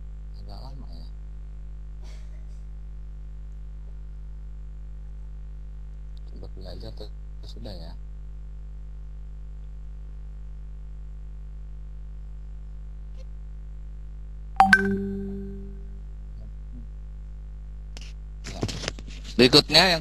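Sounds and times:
sharp ringing ding: 0:14.6 - 0:16.0.

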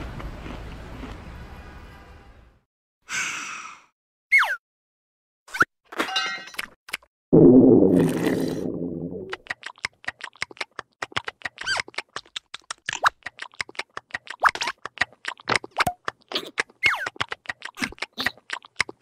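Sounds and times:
fast dry cartoon clicks: 0:09.4 - 0:19.0.

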